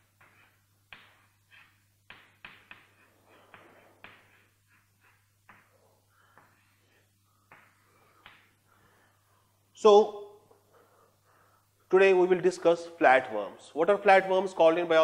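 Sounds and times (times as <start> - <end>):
chalk scratching on chalkboard: 0.0 - 5.8.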